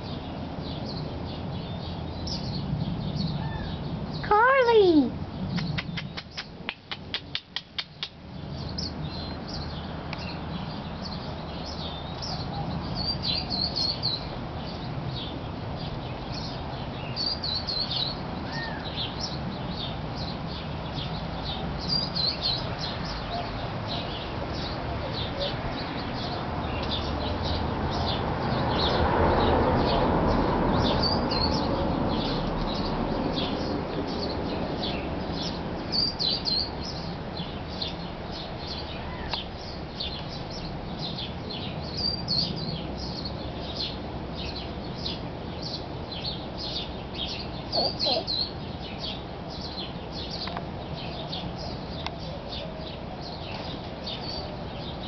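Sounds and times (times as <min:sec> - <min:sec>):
small birds chirping: 0:00.0 - 0:55.0
quick run of clicks: 0:05.5 - 0:08.2.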